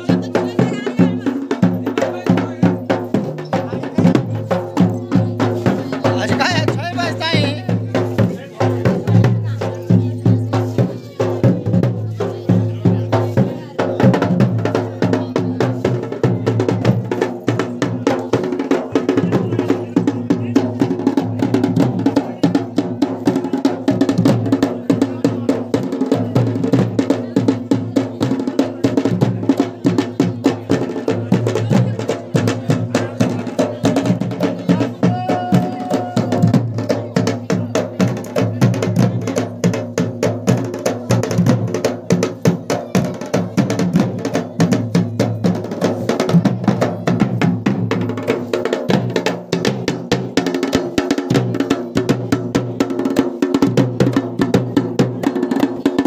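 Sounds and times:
dhol drum beaten fast: 0.0s - 56.0s.

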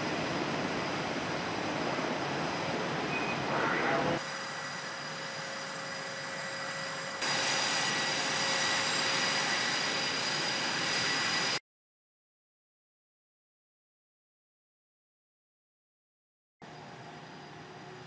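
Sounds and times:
jet and machinery whine: 0.0s - 11.6s.

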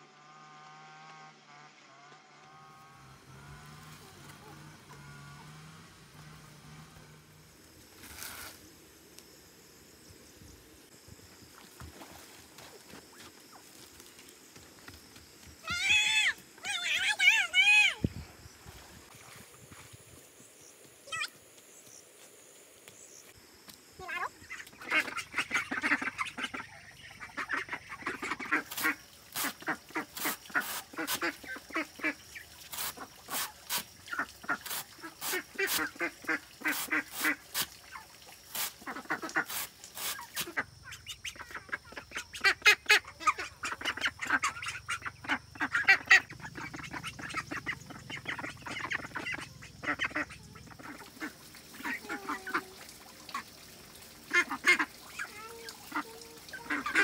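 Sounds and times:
ducks quacking: 24.0s - 33.4s, 34.1s - 38.0s, 38.8s - 53.6s, 54.2s - 57.0s.

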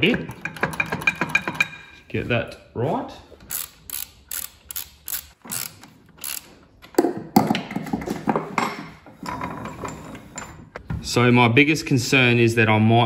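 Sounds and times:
metallic clatter of tools: 0.0s - 1.9s
ratchet wrench clicking: 3.5s - 6.6s.

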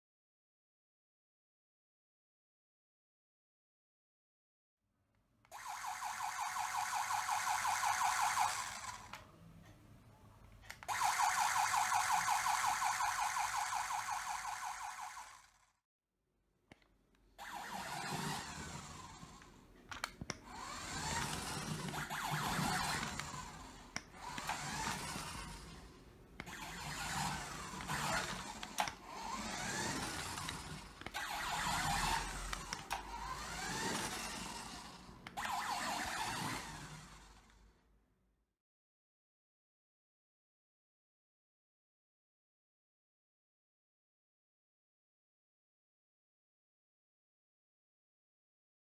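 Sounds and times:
toy siren warbling and wailing: 5.5s - 9.2s, 10.8s - 15.6s, 17.4s - 19.5s, 20.5s - 37.4s.

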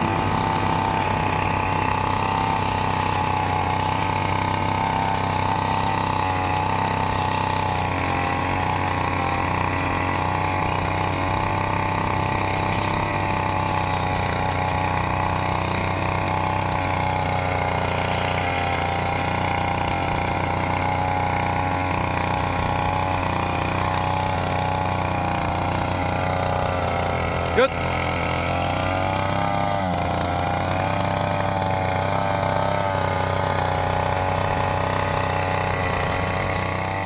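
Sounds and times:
small petrol engine running: 0.0s - 37.0s
tiller tines churning soil: 0.0s - 37.0s.

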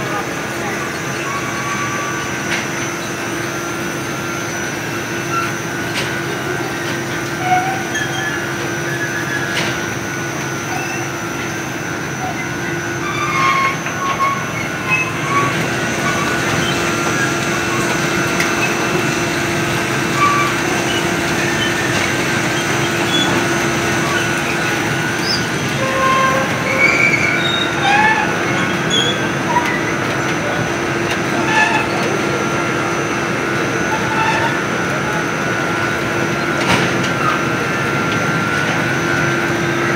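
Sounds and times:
conveyor mechanical hum: 0.0s - 39.9s
short high squeaks: 7.4s - 9.8s, 12.2s - 19.0s, 20.0s - 29.9s.

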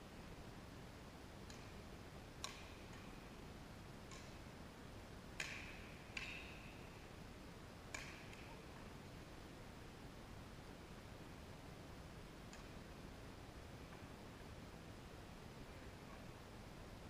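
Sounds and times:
racket hitting shuttlecock: 5.4s - 6.9s, 7.9s - 8.4s.

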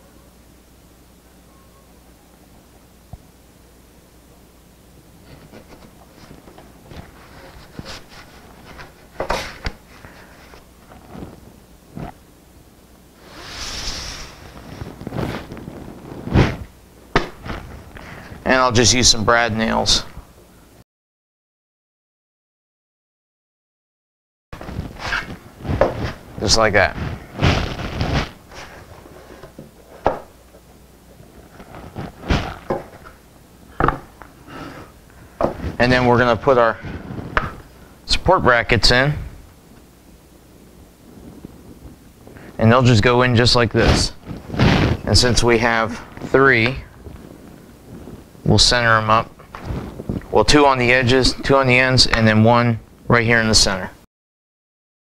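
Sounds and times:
paper rustling: 5.2s - 12.1s, 31.2s - 33.1s.

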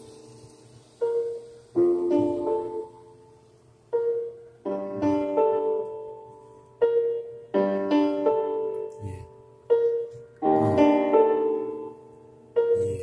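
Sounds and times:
keyboard chords ringing out: 3.9s - 13.0s.

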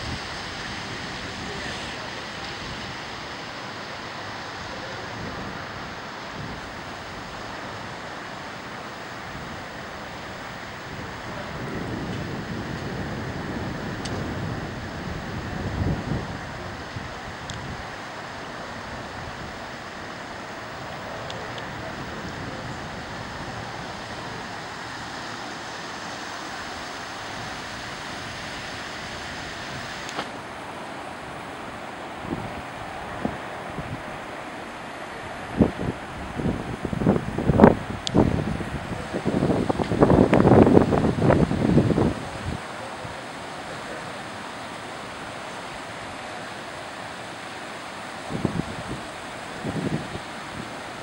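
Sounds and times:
wind buffeting microphone: 0.0s - 43.2s, 48.2s - 50.8s
wind rushing: 35.2s - 42.6s.

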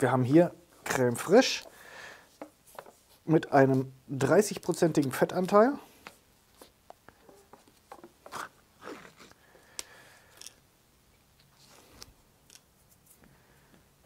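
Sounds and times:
plastic lid crinkling: 6.6s - 10.6s.

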